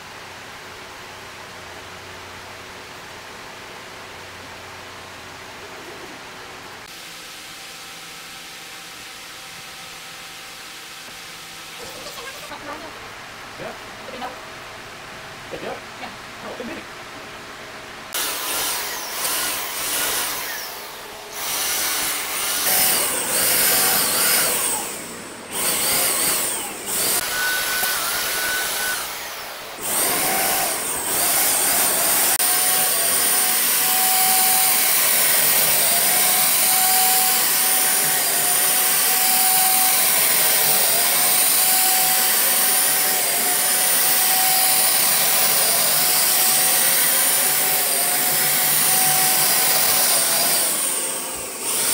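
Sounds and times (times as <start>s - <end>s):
electric paint sprayer whining: 18.1s - 51.9s.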